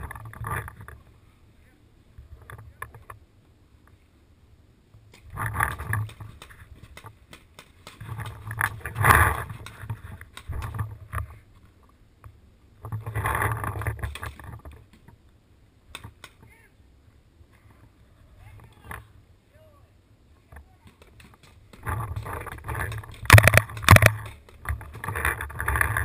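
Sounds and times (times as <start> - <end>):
camera handling rumble: 21.1 - 26.0.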